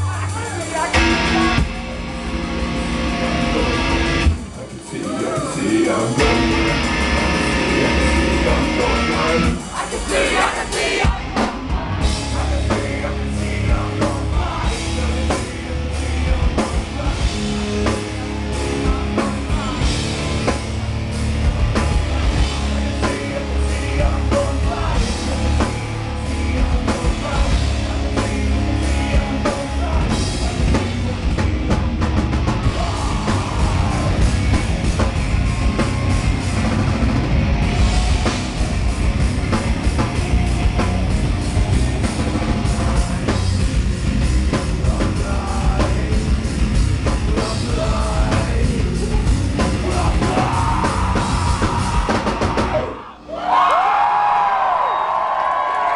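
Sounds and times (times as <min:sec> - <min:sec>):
heavy metal band playing: 0:00.0 - 0:55.9
person singing: 0:03.2 - 0:20.6, 0:21.8 - 0:31.8, 0:32.6 - 0:35.1, 0:44.5 - 0:53.2.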